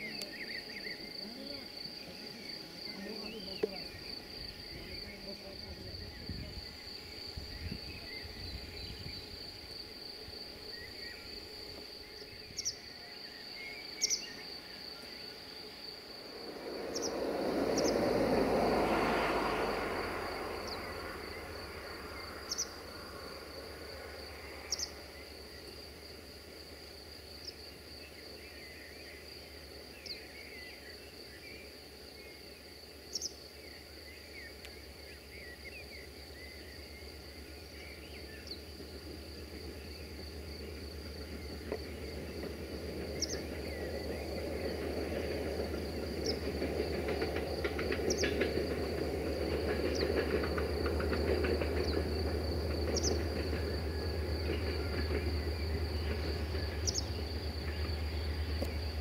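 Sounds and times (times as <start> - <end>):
insects trilling: 0.0 - 59.0
broad rushing sound: 16.0 - 23.5.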